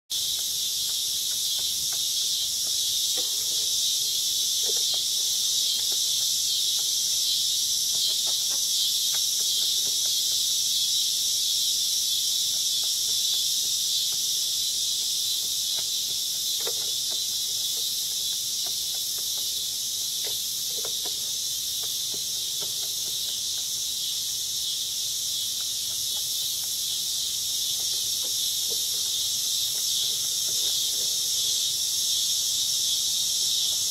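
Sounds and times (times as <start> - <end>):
insects chorus: 0.1 - 33.9.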